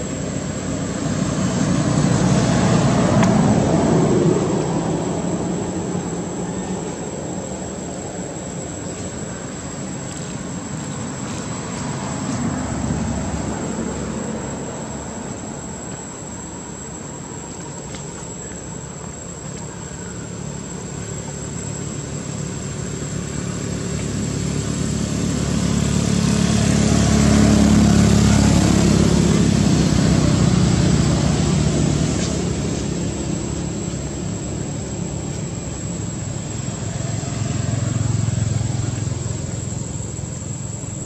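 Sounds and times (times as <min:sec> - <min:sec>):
passing vehicle engine hum: 0:00.0 - 0:41.0.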